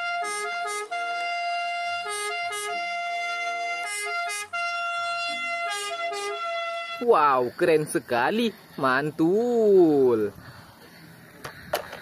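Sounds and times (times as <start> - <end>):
two-tone ambulance siren: 0.0 - 7.0.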